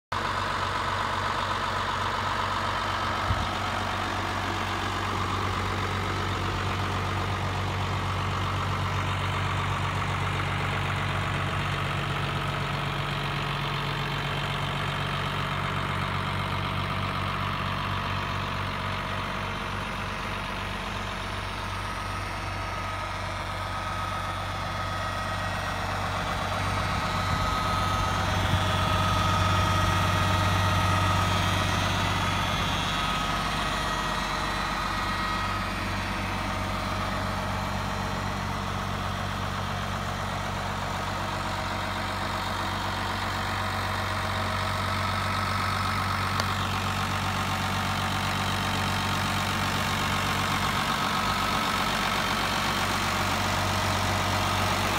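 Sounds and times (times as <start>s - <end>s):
tractor engine idling: 0.0s - 54.9s.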